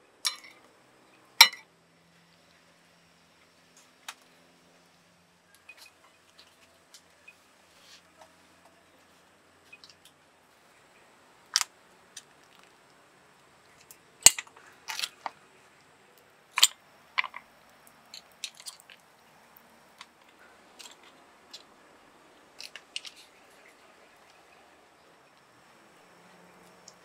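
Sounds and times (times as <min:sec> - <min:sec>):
tongs and clam shells clacking: 0:00.2 - 0:00.6, 0:16.6 - 0:17.4, 0:18.1 - 0:19.0, 0:20.0 - 0:21.7.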